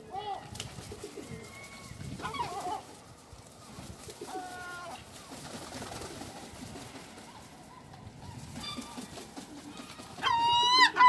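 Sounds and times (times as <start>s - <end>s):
gull and pigeon calls: 0.0s - 3.0s, 7.2s - 11.0s.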